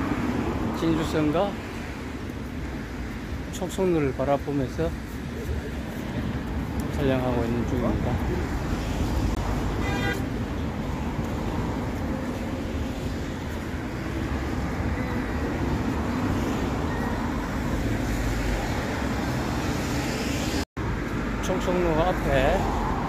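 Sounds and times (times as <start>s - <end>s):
cars passing: 0.0s - 23.0s.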